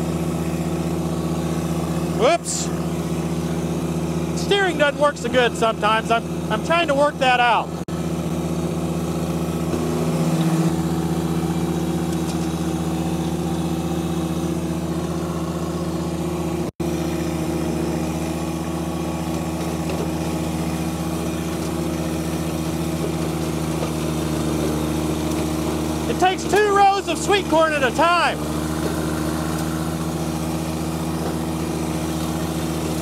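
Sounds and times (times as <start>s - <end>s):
tractor diesel engine running: 0.0s - 33.0s.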